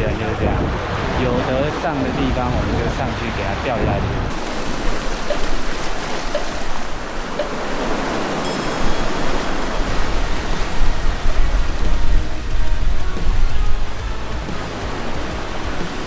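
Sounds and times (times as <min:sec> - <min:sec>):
wind rumbling on microphone: 0:00.0 - 0:16.0
surf washing against rocks: 0:04.3 - 0:16.0.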